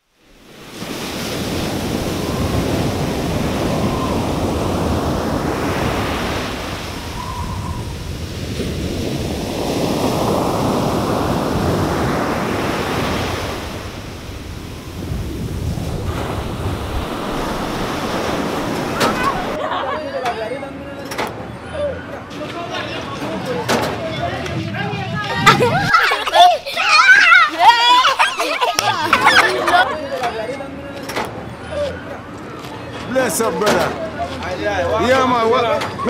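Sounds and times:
waves breaking on shore: 0.0s - 19.6s
wind on microphone: 0.6s - 19.6s, 24.3s - 26.2s.

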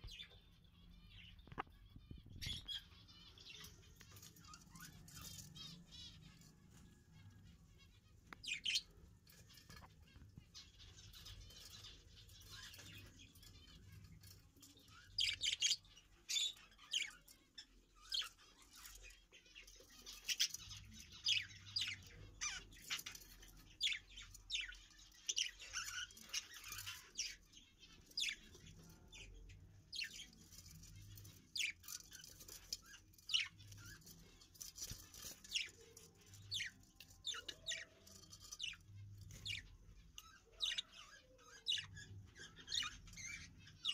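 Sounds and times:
budgerigars chirping: 1.2s - 43.9s.

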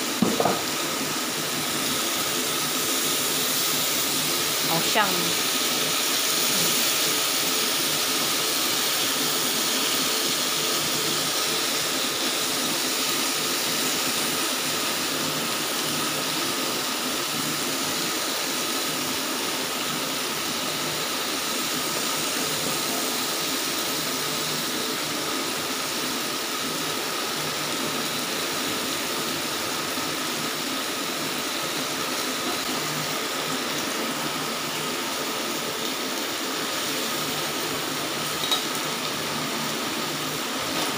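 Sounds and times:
food sizzling on grill pan: 0.0s - 40.9s.

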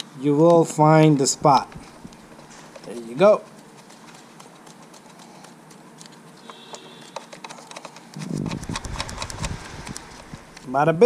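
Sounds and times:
low rumble: 8.4s - 10.9s.

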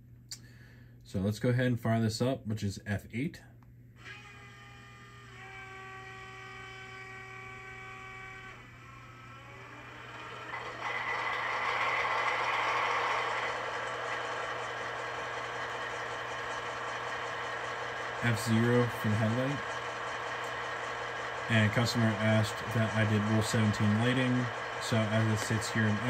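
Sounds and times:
steady multi-tone whine: 5.3s - 26.0s
rushing turbine sound: 10.2s - 26.0s.

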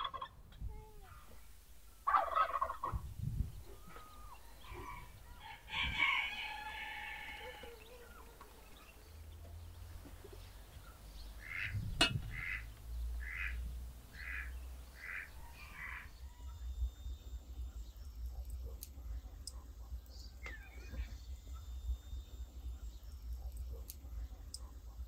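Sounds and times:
rooster crowing: 3.6s - 8.3s, 15.0s - 16.7s.

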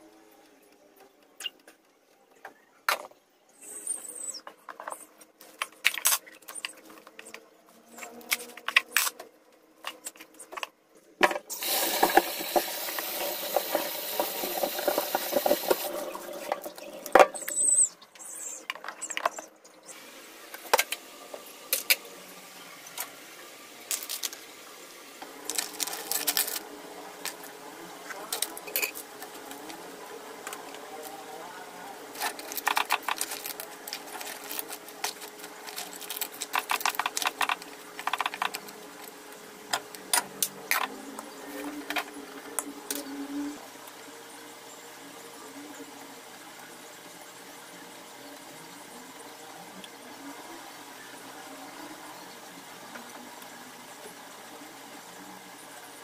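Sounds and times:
clicks and knocks of kitchen items: 9.8s - 17.6s, 32.2s - 38.7s
hands rinsing under water: 11.6s - 17.5s
tap running into metal sink: 11.6s - 17.5s.

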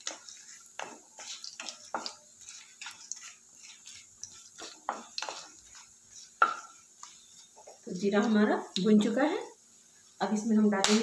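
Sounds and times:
wooden spatula scraping metal pan: 0.0s - 9.2s.

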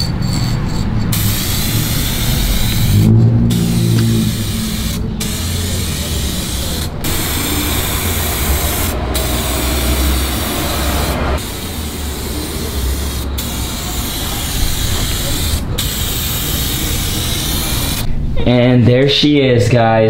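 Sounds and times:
aerosol spray can hissing: 1.1s - 18.1s.

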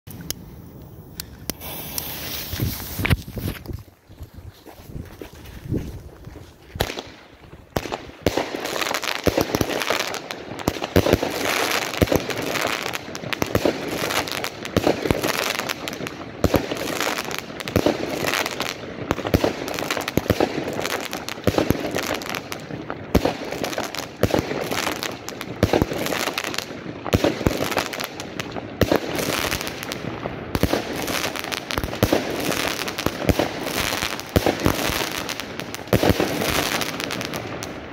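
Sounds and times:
firework bursts overhead: 0.1s - 3.7s, 6.0s - 37.9s
firework shots launching: 1.1s - 3.6s.

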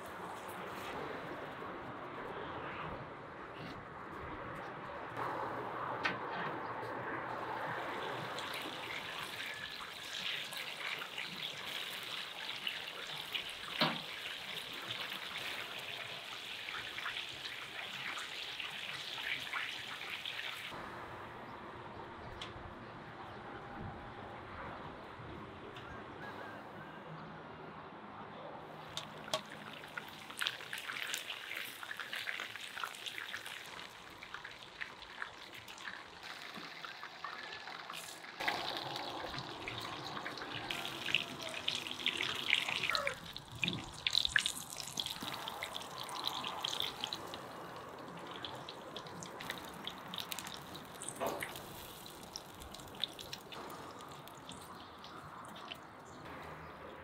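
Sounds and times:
oil popping: 28.9s - 55.9s.

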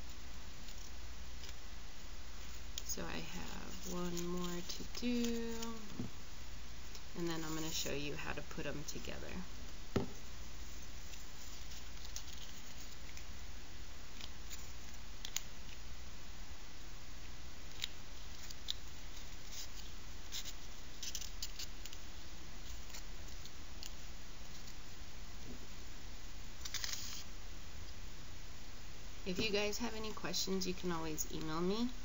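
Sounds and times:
paper strip crackling: 2.4s - 6.0s, 11.0s - 13.3s, 14.1s - 15.8s, 17.6s - 22.0s, 22.6s - 24.8s, 26.6s - 27.3s.

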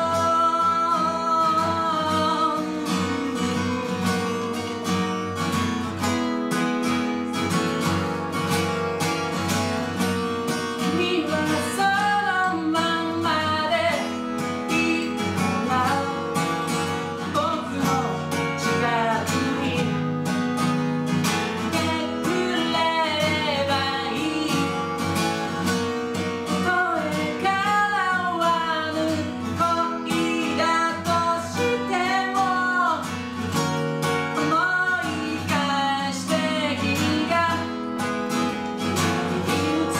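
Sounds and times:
man singing: 0.0s - 5.0s, 10.8s - 20.1s, 21.7s - 24.9s, 26.5s - 33.1s, 34.4s - 37.8s, 38.7s - 39.9s
strummed acoustic guitar: 0.0s - 39.9s.

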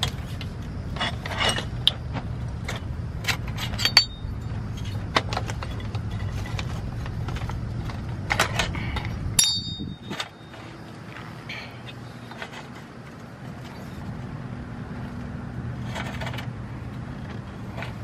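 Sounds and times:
metal sections clicking and scraping: 0.0s - 2.0s, 2.6s - 10.7s, 15.8s - 16.6s
short metallic ring: 3.6s - 4.9s, 9.4s - 10.6s.

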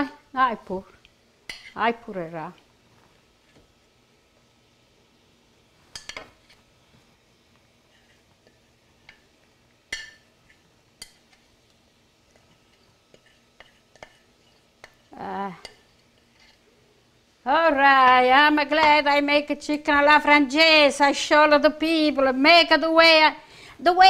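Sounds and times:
fork clinking and scraping on a plate: 5.9s - 6.6s, 12.3s - 16.6s.

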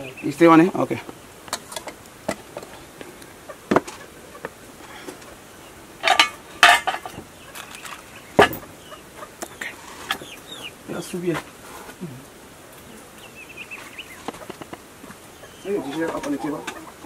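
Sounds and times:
insects buzzing: 0.0s - 17.0s
dishes and utensils clinking: 6.0s - 8.6s.

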